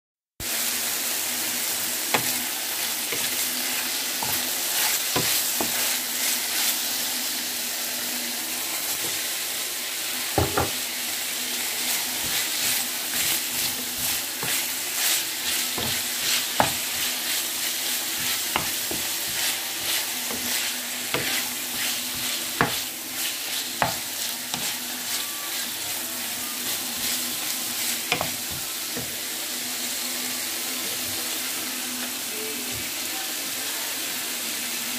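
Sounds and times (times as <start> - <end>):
food sizzling in a frying pan: 0.4 - 34.9
utensil scraping a pan: 12.2 - 25.9.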